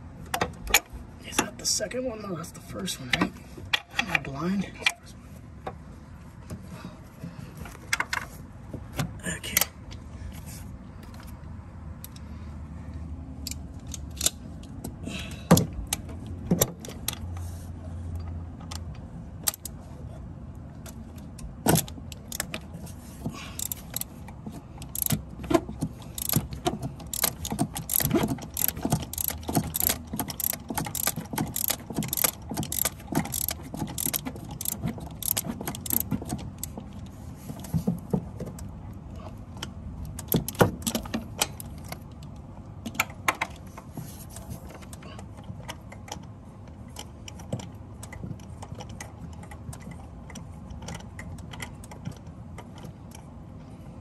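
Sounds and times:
socket ratchet clicking: 0:23.6 - 0:24.2, 0:24.8 - 0:25.2, 0:26.1 - 0:36.7
metal clicks and knocks: 0:23.6 - 0:37.0.

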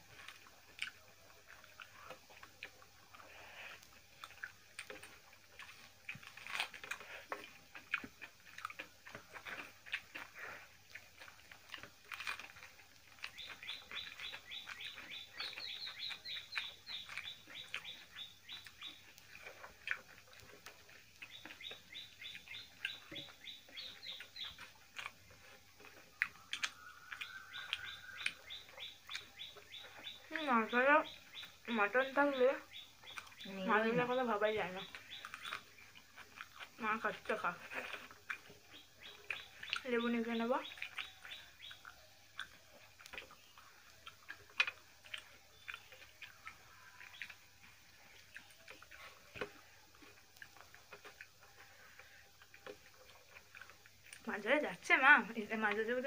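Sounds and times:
chewing: 0:00.0 - 0:56.0
hands mixing food on plates: 0:00.0 - 0:56.0
small animal chirping: 0:11.2 - 0:54.7.

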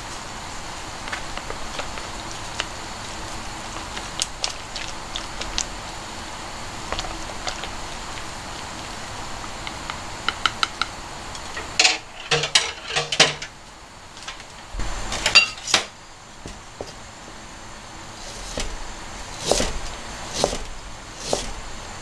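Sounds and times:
kitchenware clattering: 0:11.5 - 0:13.6, 0:15.2 - 0:17.0
utensil clinking against bowl: 0:11.6 - 0:13.5.

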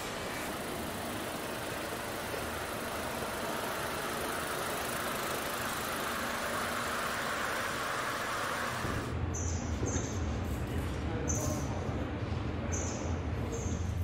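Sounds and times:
factory machinery hiss and hum: 0:00.0 - 0:09.2.

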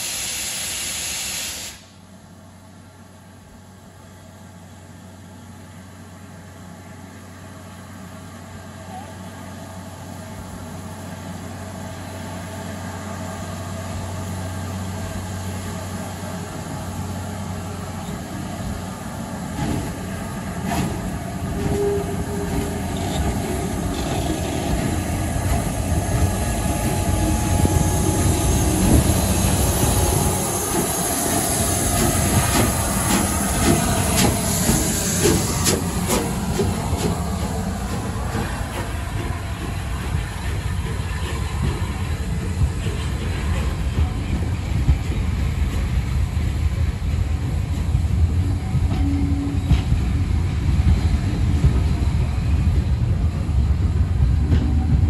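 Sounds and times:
steam hissing: 0:00.0 - 0:02.0, 0:17.8 - 0:48.9
train rumble: 0:01.7 - 0:55.0.

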